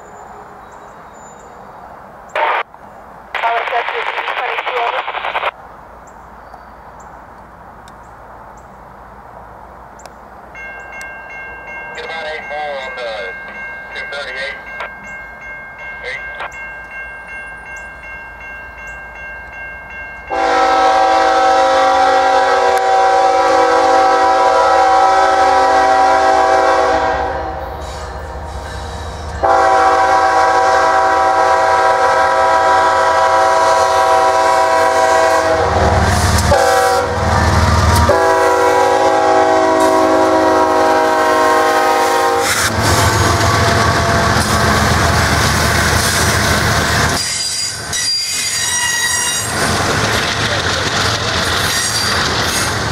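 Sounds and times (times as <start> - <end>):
diesel locomotives passing: 0.0 - 52.9
train air horn blasts: 20.3 - 45.0
train wheels clattering on rails: 42.5 - 52.9.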